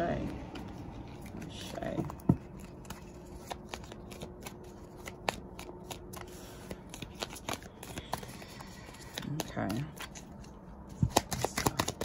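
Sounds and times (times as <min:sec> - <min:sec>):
cards being shuffled: 0:00.2 - 0:12.0.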